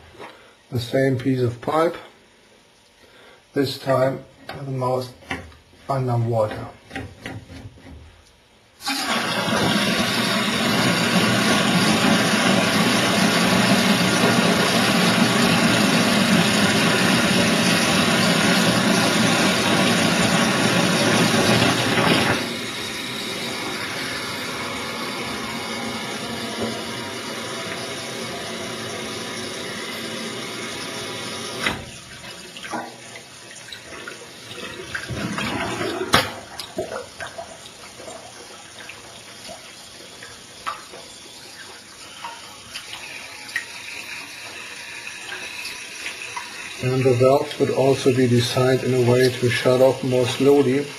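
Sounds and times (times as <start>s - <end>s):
tap water rushing through pipe: 8.8s - 50.9s
water splashes and knocks: 31.6s - 41.1s.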